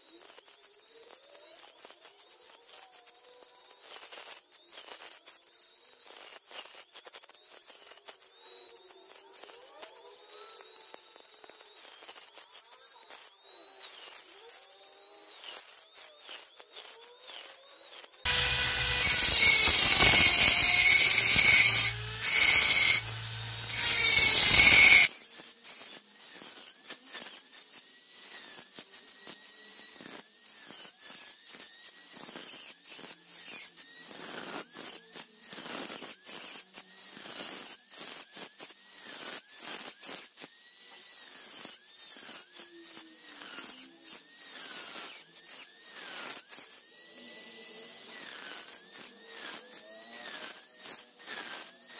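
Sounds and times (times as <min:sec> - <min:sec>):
rotary tool grinding shell: 0:13.0 - 0:34.9, 0:35.5 - 0:51.9
loud harsh noise: 0:18.3 - 0:25.1.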